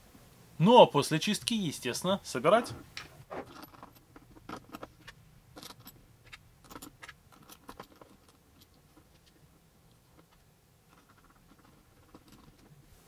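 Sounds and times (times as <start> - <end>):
small metal parts clicking and clinking: 3.4 - 12.7.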